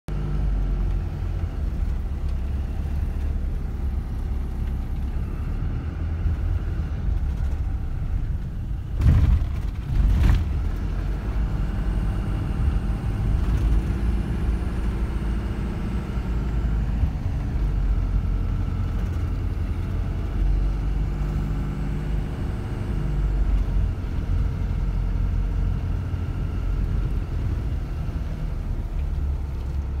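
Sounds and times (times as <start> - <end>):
engine and tyres rumbling: 0.1 - 30.0
loud thumps: 8.8 - 10.6.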